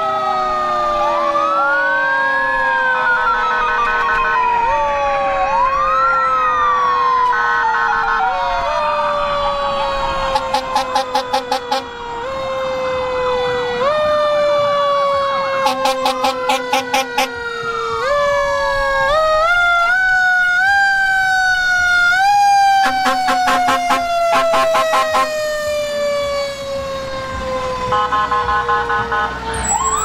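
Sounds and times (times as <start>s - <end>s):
warbling siren yelps: 0.0s - 12.6s, 15.6s - 20.8s, 27.9s - 30.0s
rapid pulsing siren blasts: 0.0s - 30.0s
wailing siren: 0.0s - 30.0s.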